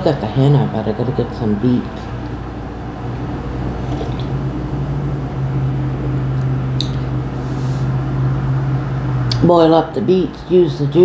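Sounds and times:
appliance humming: 0.0 - 11.0
woman sipping coffee: 3.8 - 4.4.

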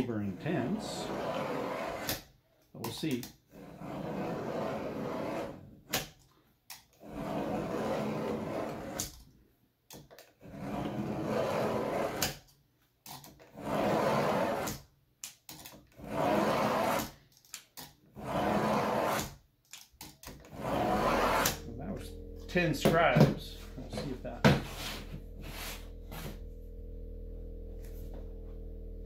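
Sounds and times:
knife scratching tile: 0.6 - 2.3, 3.5 - 6.0, 7.0 - 9.1, 10.4 - 12.4, 13.4 - 14.8, 15.9 - 17.2, 18.1 - 19.4, 20.4 - 21.6.

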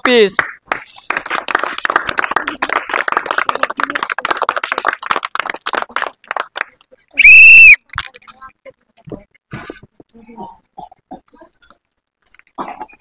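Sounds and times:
group of people clapping: 0.0 - 7.7.

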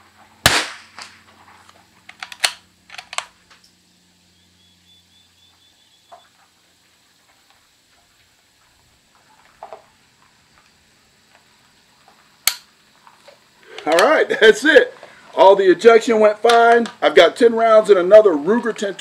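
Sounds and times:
rifle shot: 0.4 - 1.2
rifle bolt metallic clicks: 2.1 - 3.3, 12.5 - 12.7.

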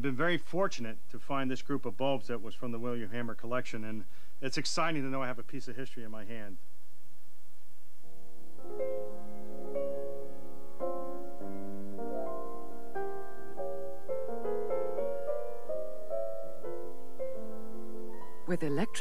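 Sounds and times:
slow piano melody: 8.0 - 19.0.

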